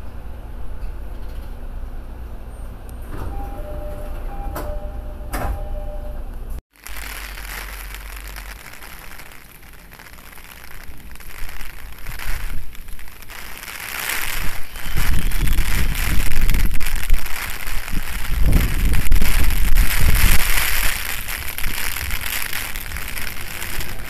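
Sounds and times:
rain hissing: 6.7 - 24.0.

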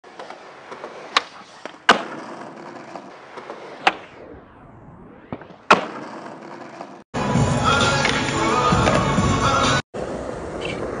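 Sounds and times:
skateboard wheels rolling on concrete: 0.0 - 4.3, 5.3 - 11.0.

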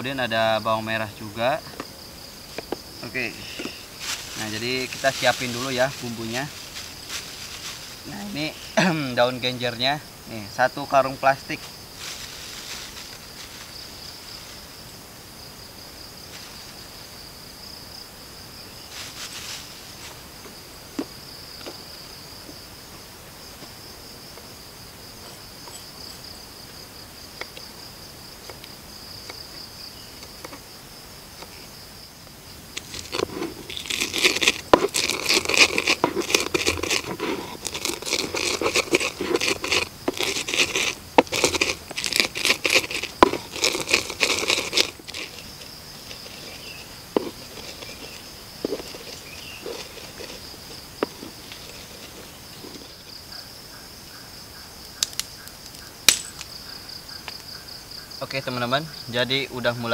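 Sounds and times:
insects buzzing: 0.0 - 59.9
stone pestle grinding in mortar: 32.9 - 53.2.

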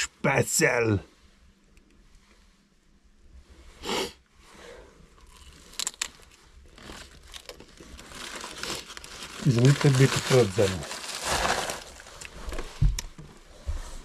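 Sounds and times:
pretzel crunching: 5.2 - 12.4
rustling: 5.2 - 14.0.

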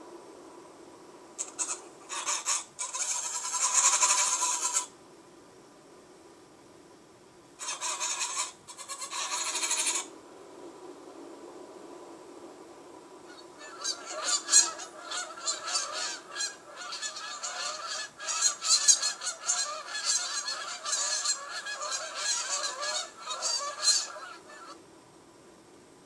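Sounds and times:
faint low hiss: 0.0 - 26.0
geese honking: 13.3 - 24.8.

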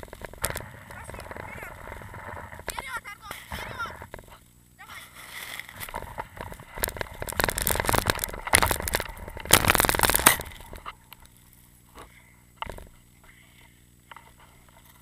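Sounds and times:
branches scraping microphone: 0.0 - 11.0
twigs and snow crackling: 0.0 - 15.0.

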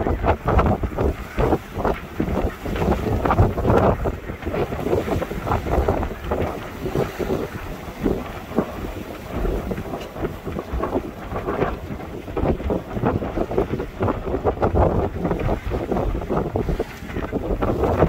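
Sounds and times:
water splashing past hull: 0.0 - 18.0
wind buffeting microphone: 0.0 - 18.0.

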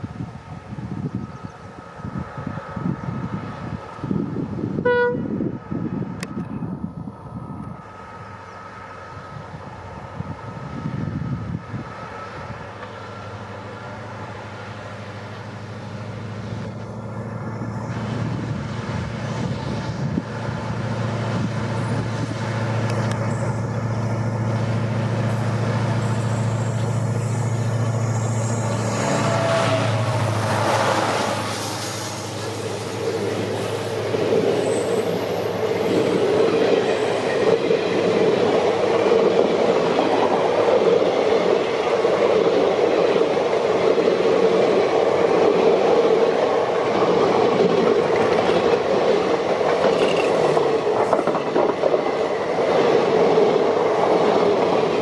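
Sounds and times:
gusty wind noise: 0.0 - 12.9, 16.2 - 55.0
diesel locomotive engine drone: 0.0 - 55.0
train horn toot: 4.8 - 5.4, 28.8 - 30.4.

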